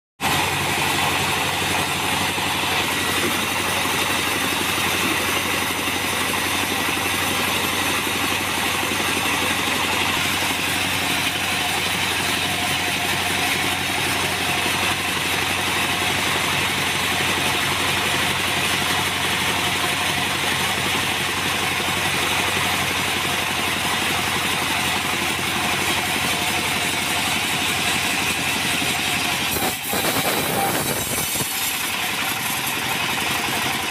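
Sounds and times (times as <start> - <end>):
bandsaw sawing a log: 0.2 - 33.9.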